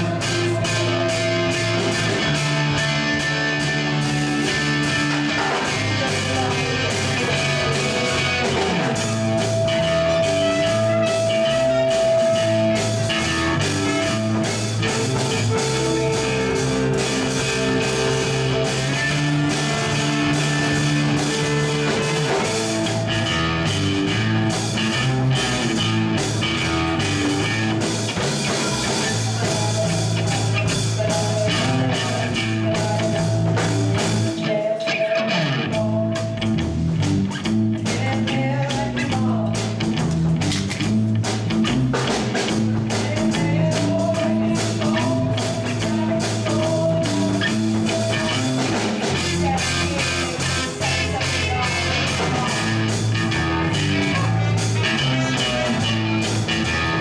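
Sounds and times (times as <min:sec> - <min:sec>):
bass guitar: 0:00.0 - 0:57.0
drum kit: 0:00.0 - 0:57.0
electric guitar: 0:00.0 - 0:57.0
trumpet: 0:05.7 - 0:19.2
saxophone: 0:07.2 - 0:27.7.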